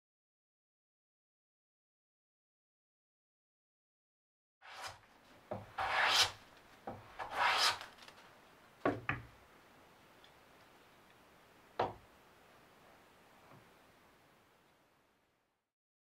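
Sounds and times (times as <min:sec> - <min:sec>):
hand plane shaving wood: 0:04.6 - 0:05.0, 0:05.6 - 0:06.4, 0:07.2 - 0:07.9.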